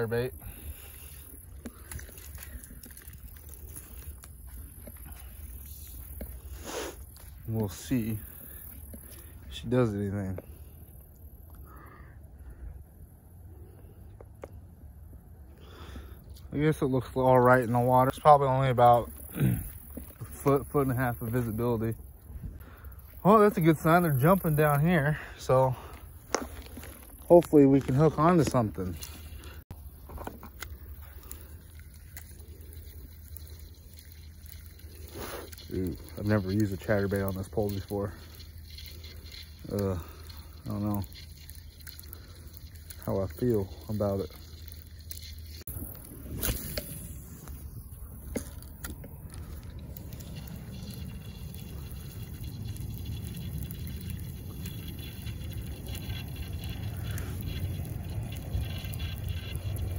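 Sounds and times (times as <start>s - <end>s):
steady low rumble: 45.4s - 59.9s.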